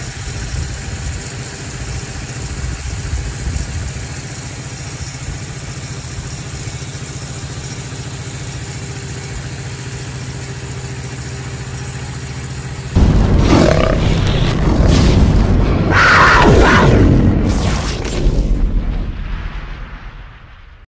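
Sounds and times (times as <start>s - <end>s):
pump engine running: 0.0s - 15.6s
boom sound effect: 13.0s - 20.9s.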